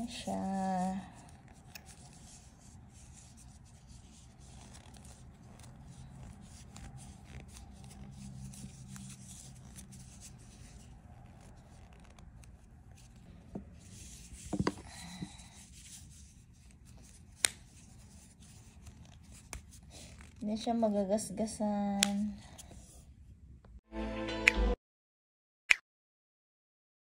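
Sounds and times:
hands rubbing yarn: 0.0 - 20.4.

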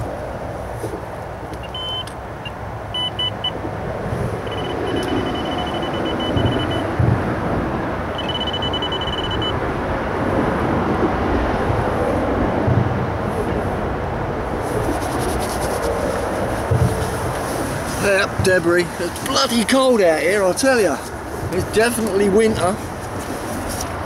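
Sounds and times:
road traffic rumble: 0.0 - 24.0
rapid high-pitched electronic beeps: 1.6 - 2.1, 3.0 - 3.6, 4.4 - 7.0, 8.1 - 9.6.

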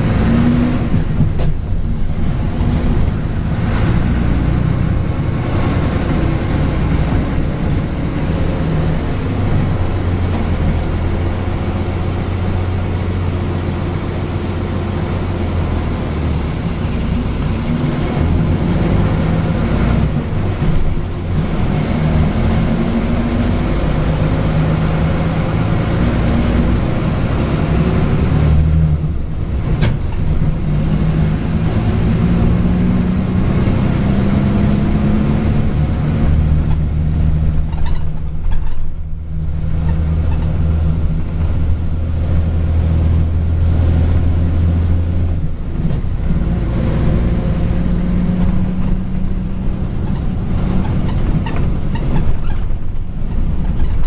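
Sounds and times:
bus engine running: 0.0 - 54.0.

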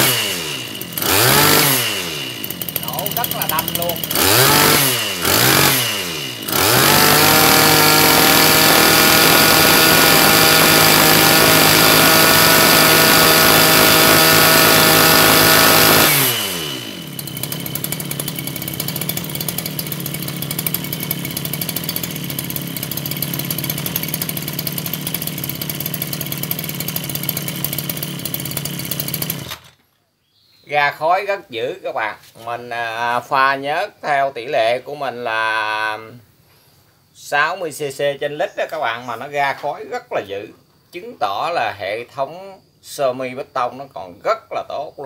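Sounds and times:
brush cutter engine revving: 0.0 - 29.8.

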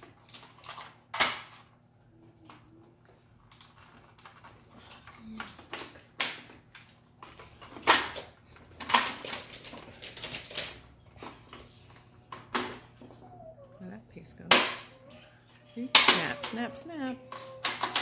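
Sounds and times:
plastic pieces clicking and knocking: 3.4 - 11.6, 14.5 - 18.0.

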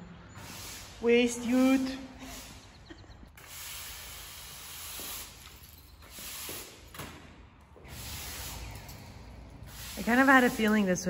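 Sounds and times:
push broom scraping concrete: 9.6 - 11.0.

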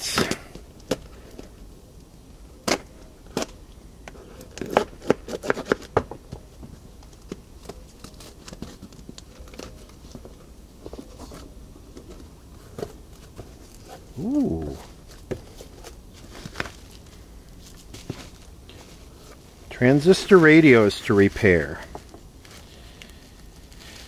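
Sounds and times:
knife slitting packing tape: 4.4 - 5.9
cardboard flaps and paper handled: 4.4 - 19.5.

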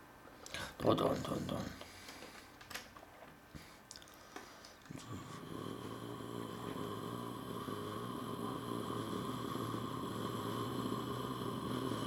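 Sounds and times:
person imitating engine drone: 4.9 - 12.0.

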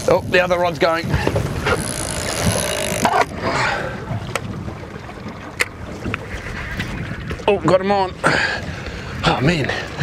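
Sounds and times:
water around boat: 0.0 - 10.0
wind: 0.0 - 10.0
fishing reel drag ratchet: 1.8 - 3.1.

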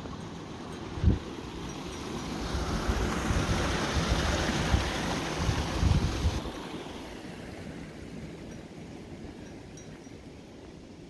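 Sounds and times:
wind buffeting microphone: 2.4 - 6.6.

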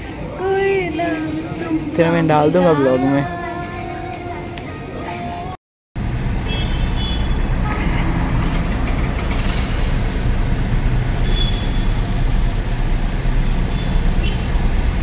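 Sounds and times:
car engine and road rumble: 6.0 - 15.0.

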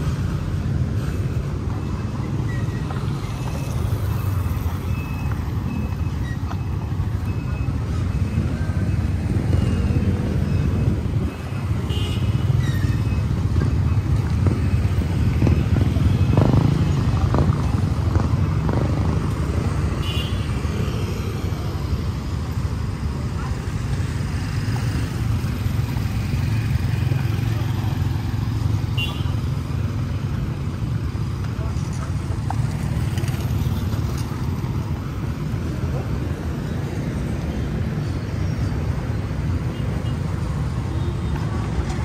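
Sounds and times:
passing motorcycles and cars: 0.0 - 42.0.

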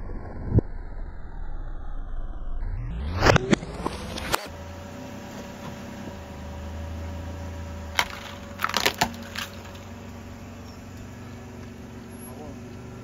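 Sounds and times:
car engine hum: 3.1 - 13.0
plastic toys cracking under tyre: 7.9 - 10.0.

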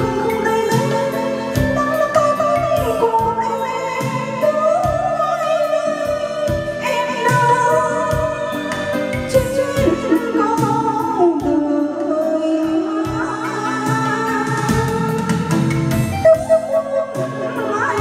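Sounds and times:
backing track with steady beat: 0.0 - 18.0
person singing karaoke: 0.0 - 18.0.

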